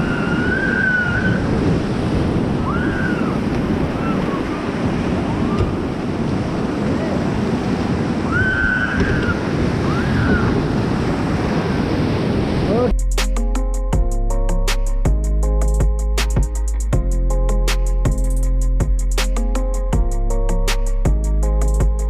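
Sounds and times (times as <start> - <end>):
wind buffeting microphone: 0.0 - 13.0
river rapids rushing: 0.7 - 12.9.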